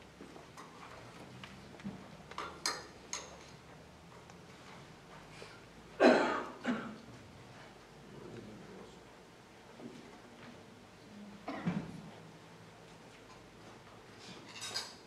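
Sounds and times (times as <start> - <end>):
person coughing: 6.0 - 7.0, 11.5 - 11.8.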